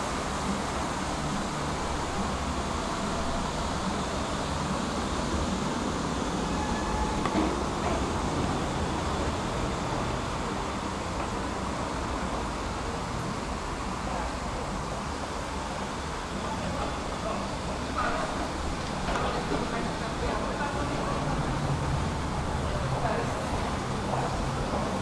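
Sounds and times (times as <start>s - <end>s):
tram wheel clack: 0.0s - 10.0s, 16.7s - 25.0s
tram wheels rumbling on rails: 0.0s - 25.0s.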